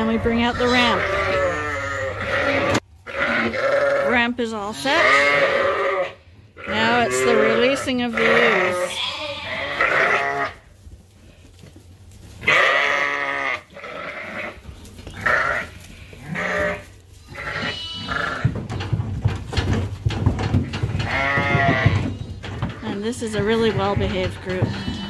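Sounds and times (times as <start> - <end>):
sheep bleating: 0.6 - 10.6, 12.4 - 14.6, 15.2 - 18.5, 21.0 - 22.1
knocking and rumbling: 18.2 - 25.0.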